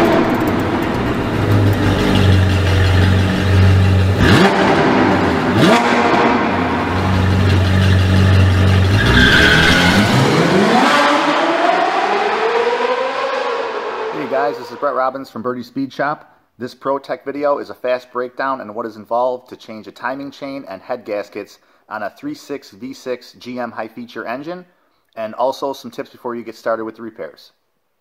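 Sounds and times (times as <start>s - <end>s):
whoosh: 0.0s - 9.2s
sports car engine revving: 0.0s - 14.8s.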